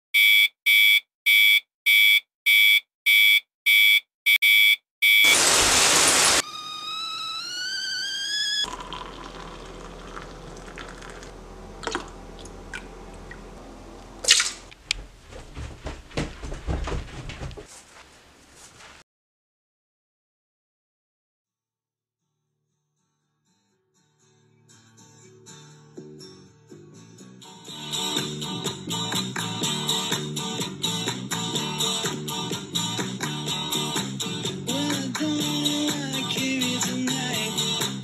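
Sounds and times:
alarm clock beeping: 0.2s - 5.4s
stovetop kettle whistling: 5.2s - 11.6s
water pouring into a mug: 8.6s - 13.4s
footsteps on a staircase: 14.8s - 19.0s.

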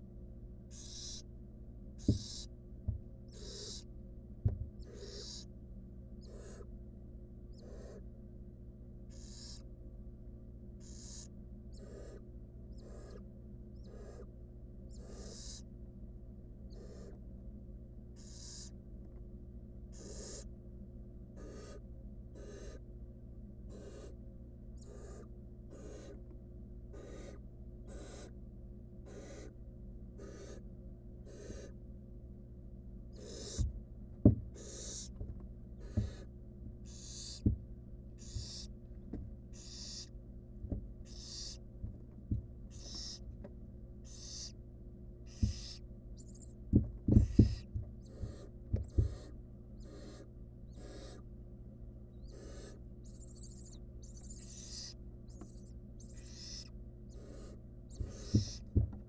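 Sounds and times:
steady low hum: 0.0s - 59.0s
owl nestlings hissing begging calls: 0.7s - 1.3s, 2.0s - 2.5s, 3.3s - 3.9s, 4.8s - 5.5s, 6.2s - 6.7s, 7.5s - 8.0s, 9.1s - 9.7s, 10.8s - 13.2s, 13.8s - 14.3s, 14.9s - 15.7s, 16.7s - 17.2s, 18.2s - 18.8s, 19.9s - 20.5s, 21.4s - 21.8s, 22.4s - 22.8s, 23.7s - 24.2s, 24.8s - 26.2s, 26.9s - 28.4s, 29.0s - 29.6s, 30.2s - 30.6s, 31.2s - 31.8s, 33.1s - 33.6s, 34.6s - 35.2s, 35.8s - 37.4s, 38.2s - 38.7s, 39.5s - 40.1s, 41.0s - 41.6s, 42.7s - 43.3s, 44.0s - 44.6s, 45.2s - 46.6s, 47.2s - 51.2s, 52.1s - 58.7s
thumps in wooden nest box: 2.0s - 3.0s, 38.3s - 39.3s, 45.4s - 45.8s, 46.7s - 49.2s, 58.0s - 59.0s.

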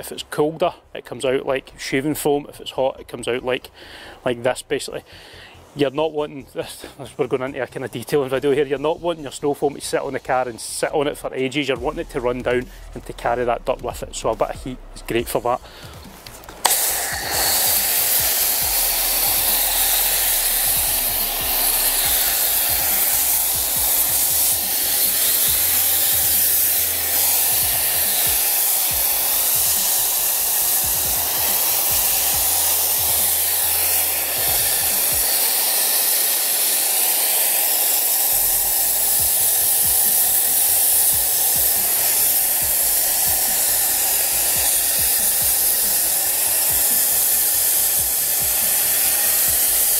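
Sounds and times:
pressure washer spraying foam: 11.8s - 49.9s.

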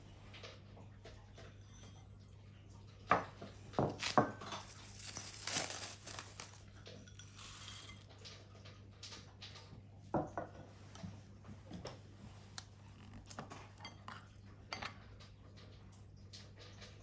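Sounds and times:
kitchen utensils and dishes clinking: 0.0s - 2.4s, 3.0s - 10.8s, 13.3s - 15.8s.

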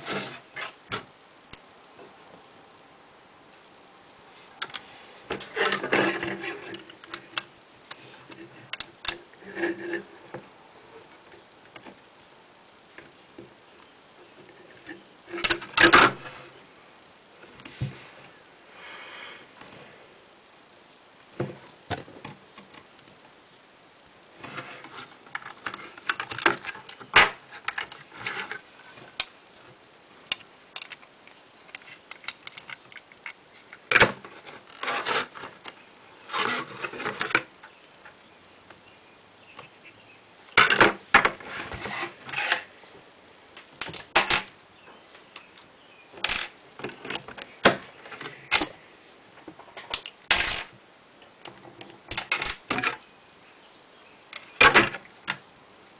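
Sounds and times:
plastic bricks clicking: 30.3s - 31.1s, 31.7s - 35.4s, 43.8s - 44.6s, 49.8s - 50.7s, 51.4s - 53.0s.

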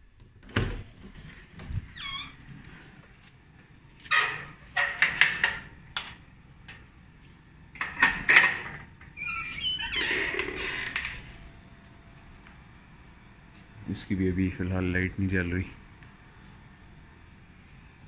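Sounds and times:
door squeak: 1.9s - 2.5s, 8.0s - 11.4s
screen door rattling: 7.8s - 11.3s
door scraping: 7.8s - 11.4s.

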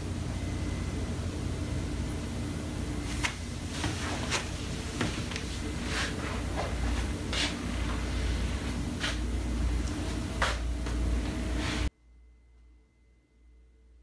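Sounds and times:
soft footsteps: 3.0s - 11.9s.

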